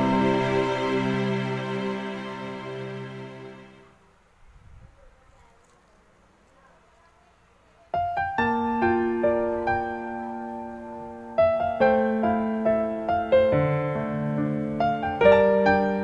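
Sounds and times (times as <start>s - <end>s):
piano music: 0.0s - 4.0s, 8.0s - 16.0s.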